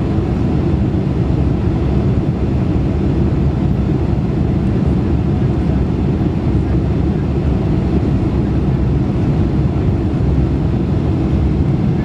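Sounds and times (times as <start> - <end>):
aircraft cabin engine rumble: 0.0 - 12.0.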